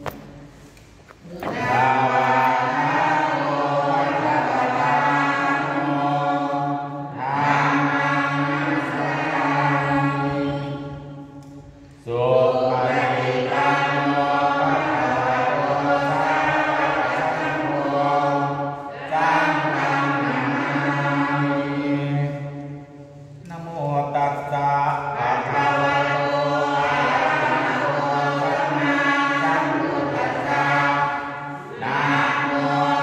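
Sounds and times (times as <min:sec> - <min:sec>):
man chanting into a microphone: 0:23.4 - 0:27.7.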